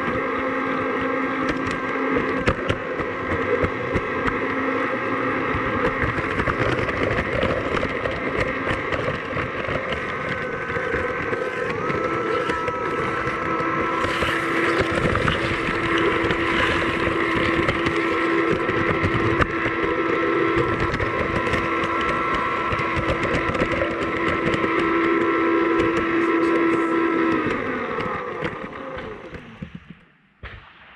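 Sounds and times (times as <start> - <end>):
electric motor whine: 0.0 - 30.1
low hum: 0.0 - 30.9
wheels clattering on rails: 5.6 - 30.0.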